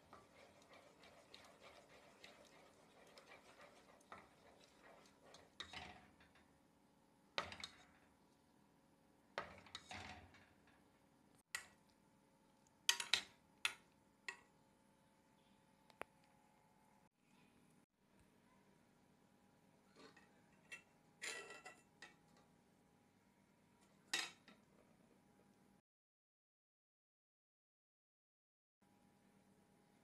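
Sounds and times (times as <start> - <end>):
wooden spoon scraping saucepan: 0.0 - 6.5.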